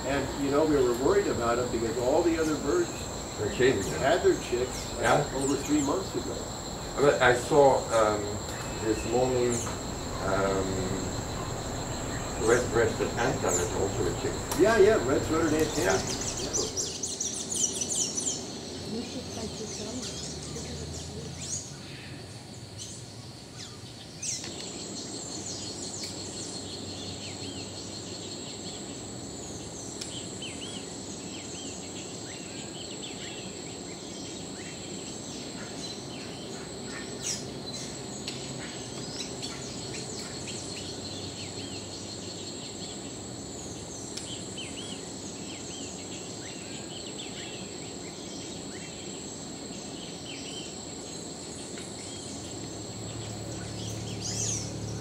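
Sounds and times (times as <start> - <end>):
bird chirps and calls: 0.0 - 21.9, 52.0 - 55.0
high-pitched insect drone: 0.0 - 22.2, 25.0 - 55.0.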